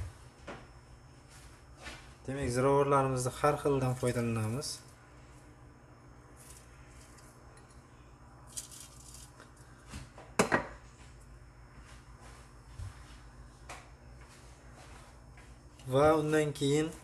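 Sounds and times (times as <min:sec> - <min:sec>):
low steady hum: 0:00.0 - 0:17.0
kitchenware clinking and knocking: 0:10.4 - 0:10.8.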